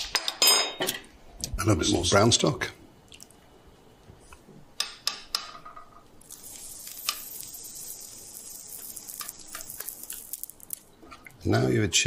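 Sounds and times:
faint steady hiss: 0.0 - 12.0
kitchen utensils clinking: 0.1 - 1.0.

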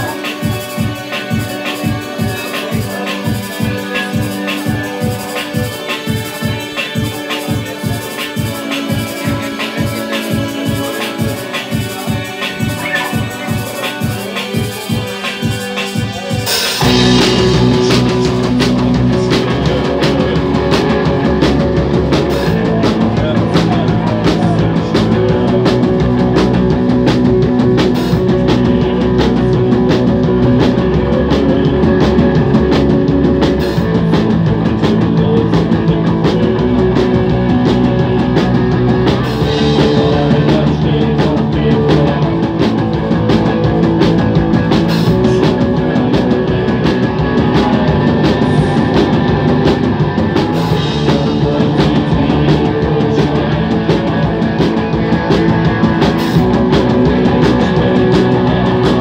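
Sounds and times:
punk rock band playing: 0.0 - 59.0.

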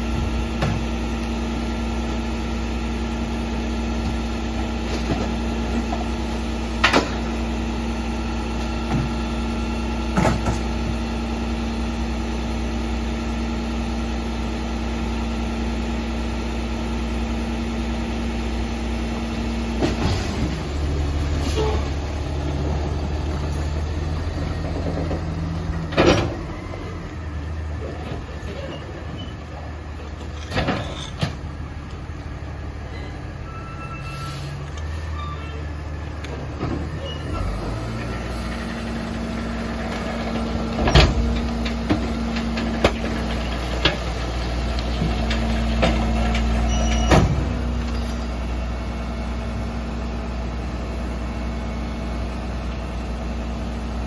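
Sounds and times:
garbage truck engine idling: 0.0 - 54.0.

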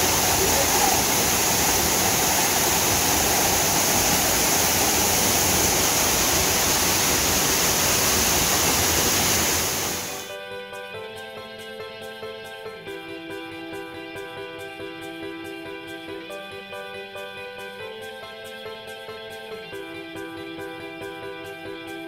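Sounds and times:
waterfall rushing: 0.0 - 10.3
gentle instrumental music: 10.1 - 22.0.

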